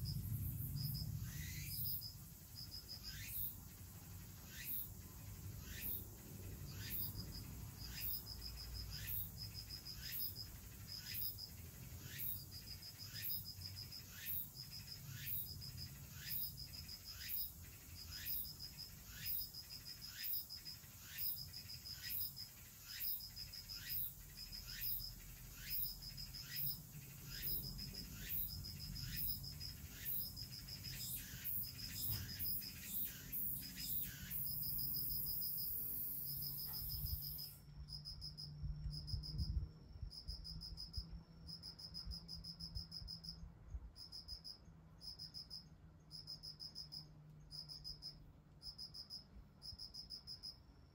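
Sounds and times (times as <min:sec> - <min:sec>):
insect sharp ticks: 0:00.0 - 0:43.4
cricket pulsed trills: 0:00.0 - 0:50.9.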